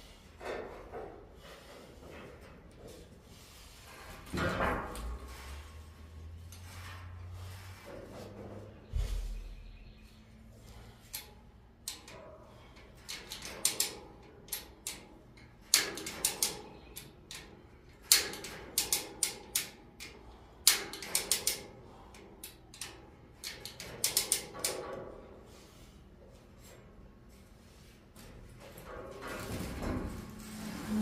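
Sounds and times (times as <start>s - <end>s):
metallic ratchet clicks: 22.4s - 24.9s.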